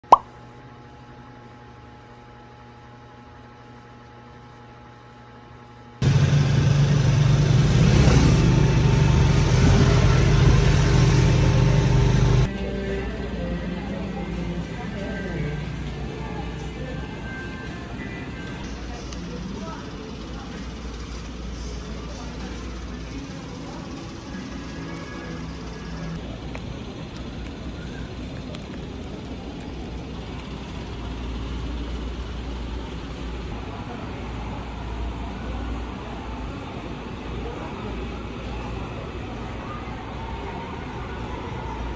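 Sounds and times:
engine drone: 6.0s - 12.5s, 18.6s - 34.1s
road noise: 6.0s - 12.5s, 17.1s - 41.9s.

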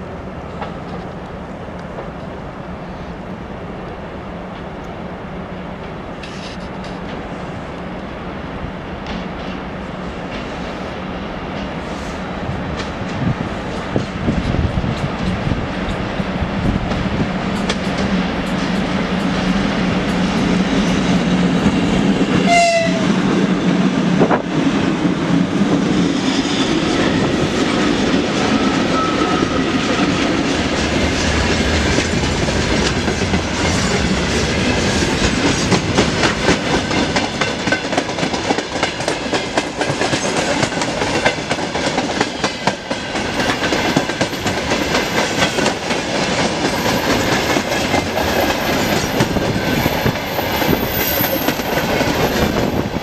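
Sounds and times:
electric locomotive humming past: 0.0s - 53.0s
train horn blast: 22.4s - 23.2s
wheels clacking over rail joints: 26.5s - 53.0s.

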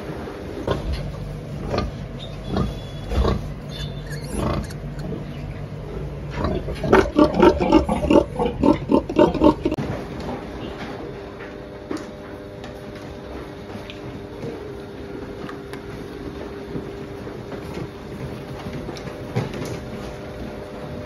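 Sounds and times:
low steady hum: 0.0s - 11.0s
pigs grunting: 0.6s - 9.8s.

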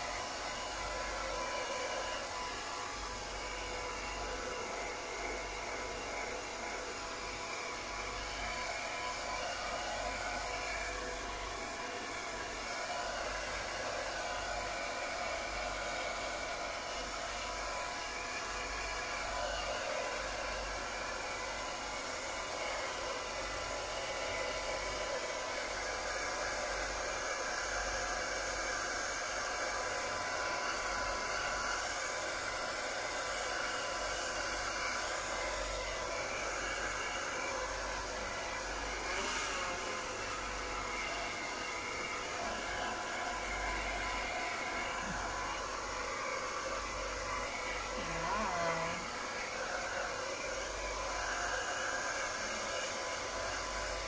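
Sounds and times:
hair dryer running: 0.0s - 54.0s.

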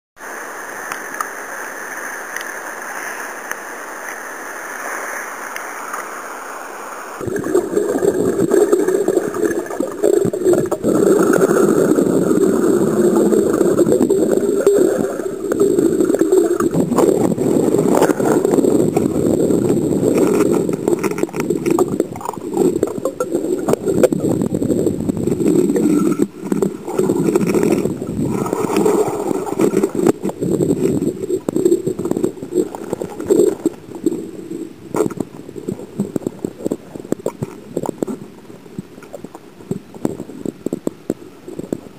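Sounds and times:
water rushing and gurgling underwater: 0.2s - 41.9s.

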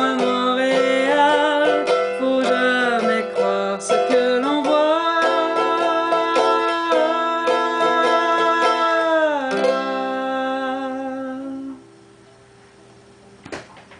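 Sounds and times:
mandolin strummed rapidly: 0.0s - 11.0s
person singing long note: 0.0s - 11.9s.

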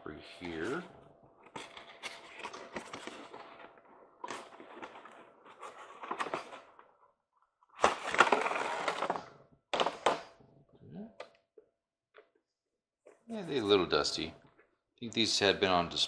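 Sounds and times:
rustling packaging: 1.4s - 7.1s, 7.8s - 9.3s.

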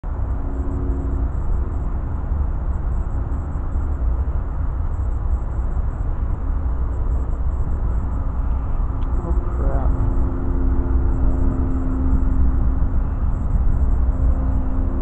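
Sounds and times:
wind rumbling on microphone: 0.0s - 15.0s
distant train horn: 8.6s - 15.0s.

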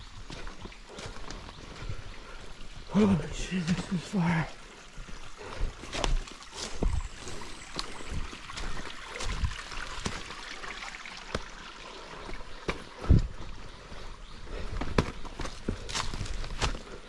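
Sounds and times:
water trickling over rocks: 0.0s - 17.0s
footsteps and knocks on stone: 5.7s - 10.4s, 11.2s - 11.6s, 12.3s - 17.0s.

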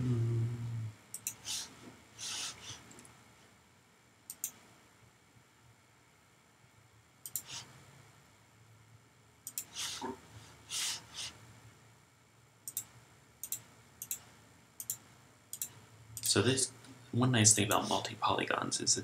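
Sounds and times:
soft breaths: 0.0s - 3.6s, 7.4s - 7.8s, 9.6s - 11.4s
computer mouse clicks: 1.1s - 1.6s, 4.3s - 4.6s, 7.2s - 7.7s, 9.4s - 9.8s, 12.6s - 16.3s.

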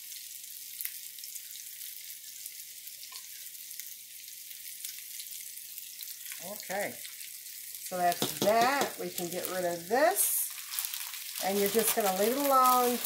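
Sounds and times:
chicken sizzling in a frying pan: 0.0s - 13.0s.

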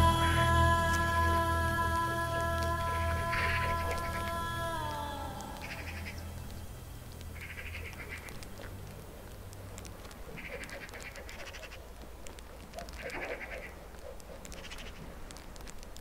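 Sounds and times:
steady low rumble: 0.0s - 12.6s.

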